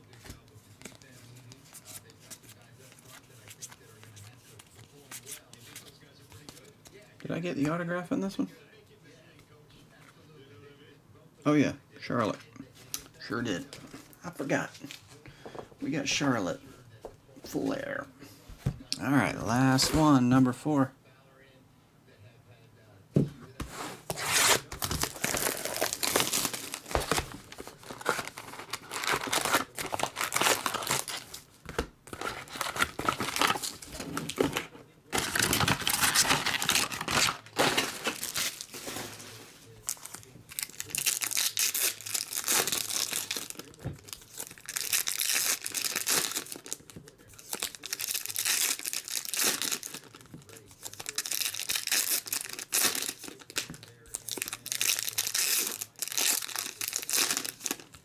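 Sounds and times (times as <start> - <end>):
foil packs tearing open: 24.1 - 31.5, 32.1 - 58.0
wrappers crinkling: 24.2 - 58.0
plastic shrink wrap peeling: 39.8 - 58.0.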